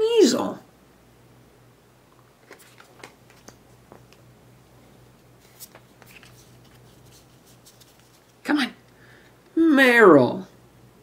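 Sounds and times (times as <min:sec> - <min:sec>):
cards clicking and rustling: 0:02.4 - 0:04.2, 0:05.4 - 0:08.4.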